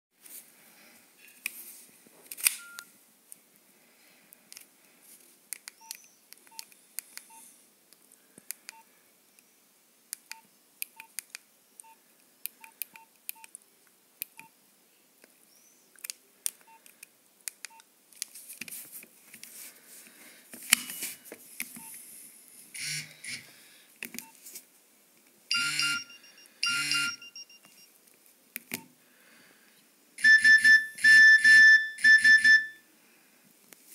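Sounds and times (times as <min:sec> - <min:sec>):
keypad tone beeps: 0:02.6 - 0:02.9, 0:25.5 - 0:27.9, 0:30.2 - 0:32.8.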